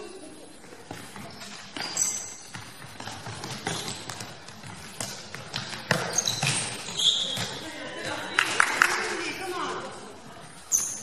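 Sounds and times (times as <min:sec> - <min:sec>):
shoe squeak: 0:01.0 - 0:05.1, 0:05.9 - 0:07.7, 0:10.6 - 0:11.0.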